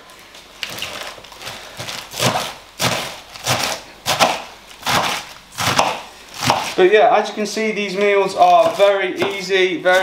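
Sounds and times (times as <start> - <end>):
knife cutting lettuce on board: 1.8 - 6.8, 8.0 - 10.0.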